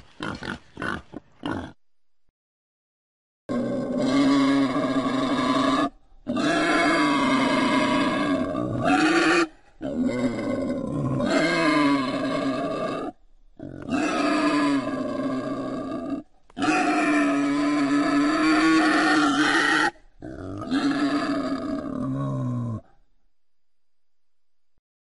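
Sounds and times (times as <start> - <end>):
wild boar calling: 3.5 - 22.9.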